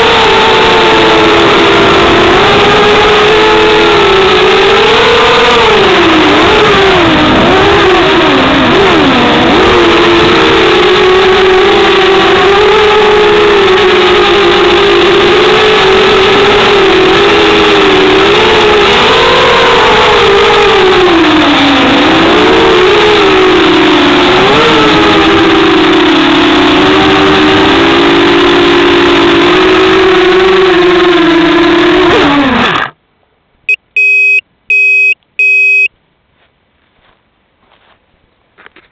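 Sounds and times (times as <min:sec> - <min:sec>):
short electronic beeps: 0:33.7 - 0:35.9.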